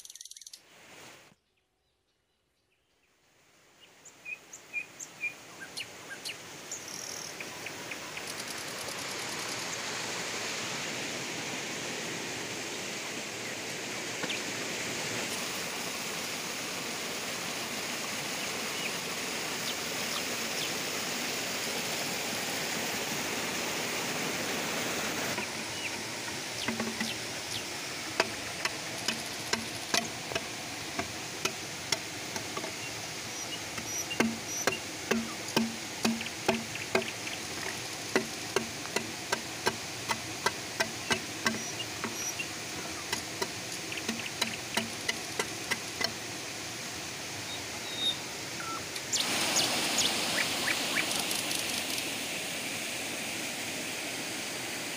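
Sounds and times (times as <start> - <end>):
river water rushing: 4.2 - 54.9
machete chopping bamboo: 33.8 - 37.1.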